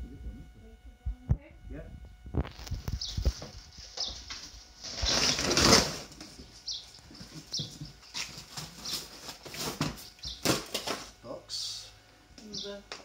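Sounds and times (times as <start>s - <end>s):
cardboard packaging scraping: 2.5s - 6.4s, 7.2s - 11.2s.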